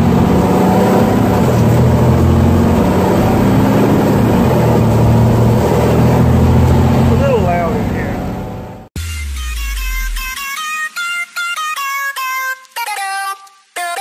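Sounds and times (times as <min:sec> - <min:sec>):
truck engine running: 0:00.0 - 0:08.9.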